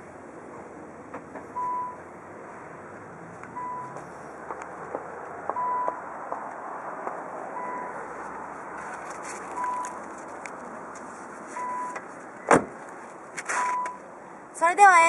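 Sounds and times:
car warning chime beeping: 1.6s - 2.0s, 3.6s - 4.0s, 5.6s - 6.0s, 7.6s - 8.0s, 9.6s - 10.0s, 11.6s - 12.6s, 13.6s - 14.0s
handling clicks and rustle: 8.7s - 14.0s.

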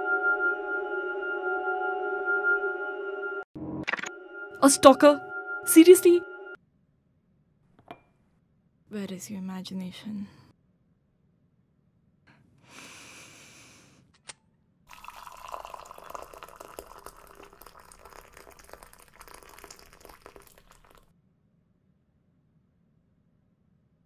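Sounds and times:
kettle hiss: 14.9s - 21.0s
water poured into teacup: 14.9s - 21.1s.

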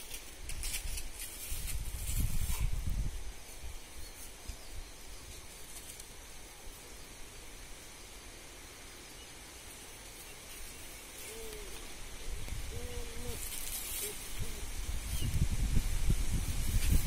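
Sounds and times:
bird hooting: 11.2s - 14.8s.

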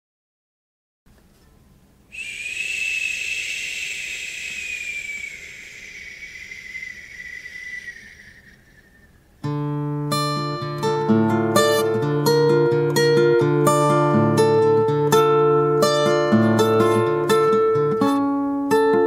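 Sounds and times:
airy whoosh with falling whistle: 2.1s - 9.3s
plucked guitar music: 9.4s - 19.0s.

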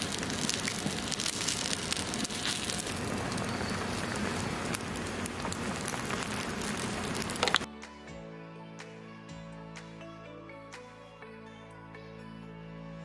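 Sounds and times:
dumplings sizzling in hot oil: 0.0s - 7.7s.

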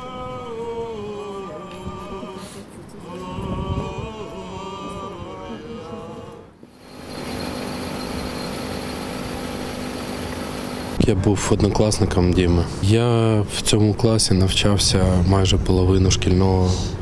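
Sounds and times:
priest chanting: 0.0s - 6.5s
outdoor noise with low hum: 0.0s - 17.0s.

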